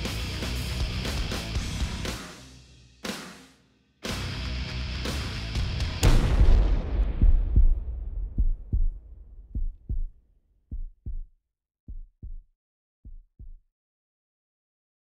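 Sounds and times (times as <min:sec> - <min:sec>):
deep boom: 0:05.9 - 0:10.1
heartbeat thumps: 0:06.0 - 0:11.3, 0:11.9 - 0:13.6.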